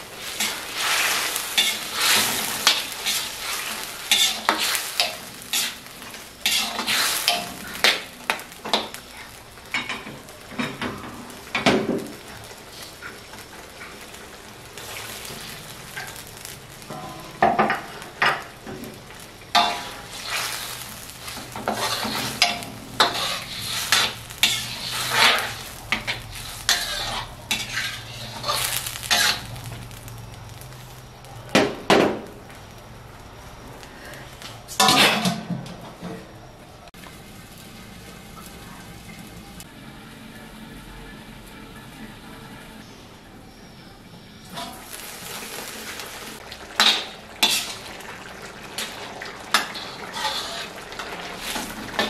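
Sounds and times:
food sizzling in oil: 0:00.0 - 0:35.6, 0:36.4 - 0:52.0
metal spatula scraping wok: 0:00.2 - 0:11.7, 0:14.8 - 0:31.1, 0:33.9 - 0:35.5, 0:44.5 - 0:48.0, 0:48.7 - 0:52.0.

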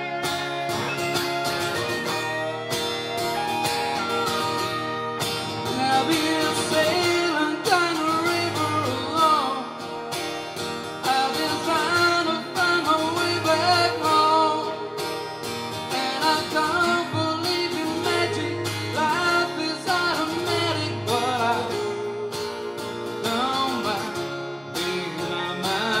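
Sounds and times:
electric guitar: 0:00.0 - 0:26.0
strummed acoustic guitar: 0:00.0 - 0:26.0
man singing: 0:05.6 - 0:09.9, 0:11.0 - 0:15.2, 0:15.9 - 0:26.0.

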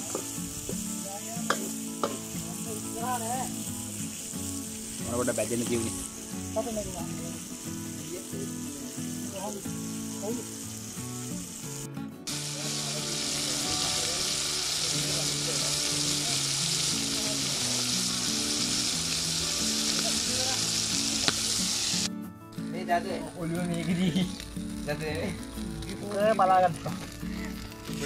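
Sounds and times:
chicken frying in oil: 0:00.0 - 0:11.7, 0:12.3 - 0:22.1.

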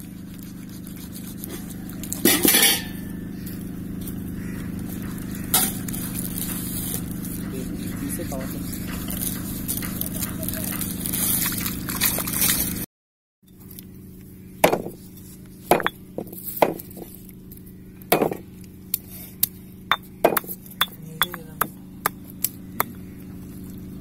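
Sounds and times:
stone pestle knocking on mortar: 0:14.6 - 0:15.0, 0:15.7 - 0:17.1, 0:18.1 - 0:18.4, 0:19.9 - 0:22.2.

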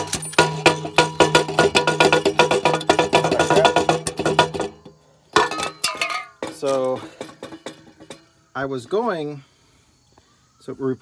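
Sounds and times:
plucked-string tune: 0:00.0 - 0:06.0.

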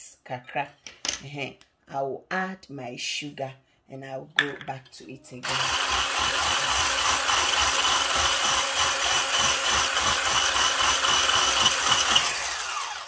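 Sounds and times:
electric whisk motor whine: 0:05.4 - 0:13.0.

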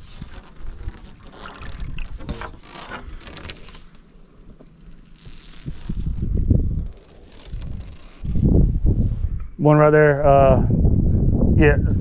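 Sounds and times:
wind rumbling on microphone: 0:00.0 - 0:03.9, 0:05.2 - 0:12.0
water lapping around boat: 0:00.0 - 0:05.9.

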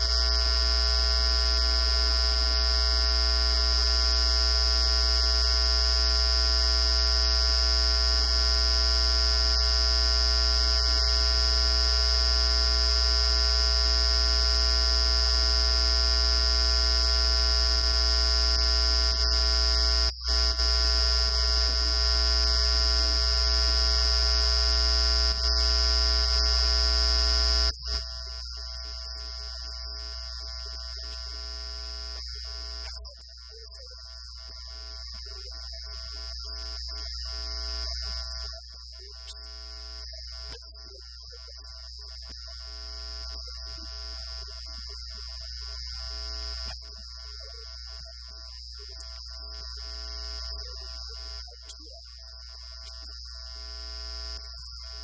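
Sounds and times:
electrical buzz: 0:00.0 - 0:33.0.

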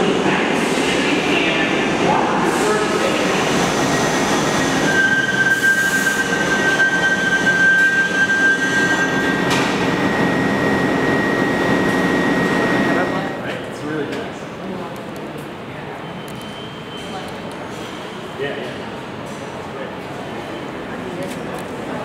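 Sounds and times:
train wheels squealing on rails: 0:02.6 - 0:13.4, 0:15.9 - 0:18.7.

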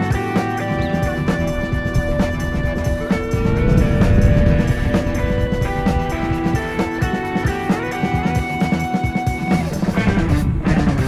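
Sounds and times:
busy drum beat: 0:00.0 - 0:11.0
jazz fusion instrumental music: 0:00.0 - 0:11.0
high sustained note: 0:01.6 - 0:07.4.

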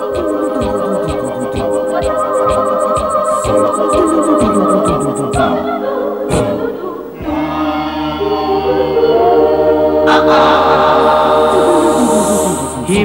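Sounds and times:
tv theme music with drum beat: 0:00.0 - 0:05.6.

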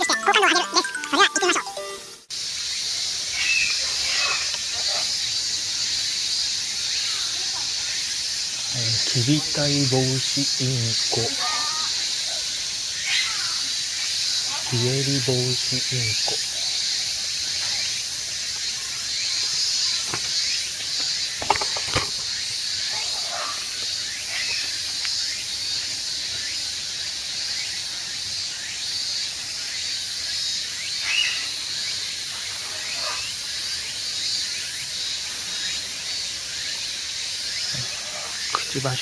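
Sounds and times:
high-pitched hiss with faint pulsing: 0:00.0 - 0:39.0.

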